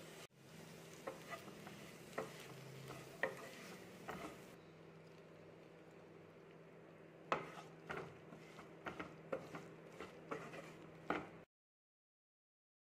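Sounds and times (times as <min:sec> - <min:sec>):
wooden spatula scraping frying pan: 0:00.8 - 0:04.6, 0:07.3 - 0:11.5.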